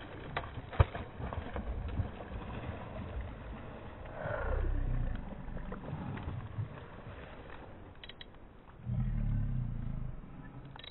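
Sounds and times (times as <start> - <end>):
fish thrashing and splashing: 0.0 - 4.0
water sloshing: 0.0 - 8.8.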